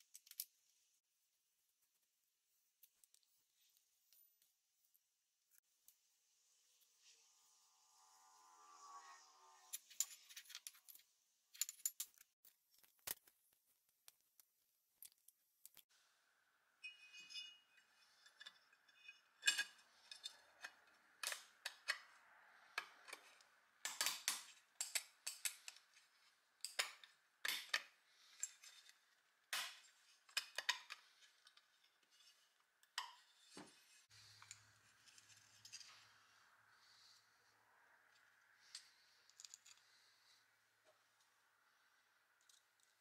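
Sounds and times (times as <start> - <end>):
metallic clicks and clinks: 0.0 - 0.6, 9.7 - 13.3, 38.1 - 39.9.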